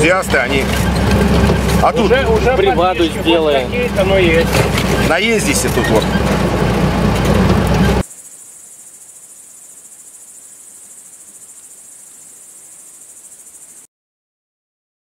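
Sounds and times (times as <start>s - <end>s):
car engine and road noise: 0.0s - 8.1s
crickets chirring: 0.0s - 13.9s.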